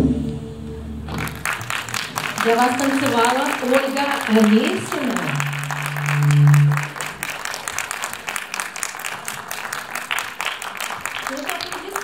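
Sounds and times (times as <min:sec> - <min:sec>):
audience applauding: 0:01.1 - 0:12.0
loud low held note: 0:04.5 - 0:07.8.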